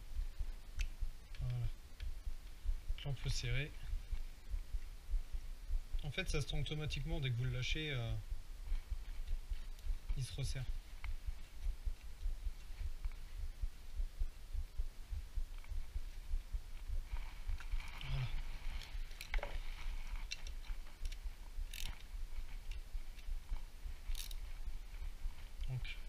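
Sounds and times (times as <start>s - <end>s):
low uneven rumble: 0.0s - 26.0s
hand tools and metal parts clicking: 20.2s - 22.0s, 24.1s - 24.4s.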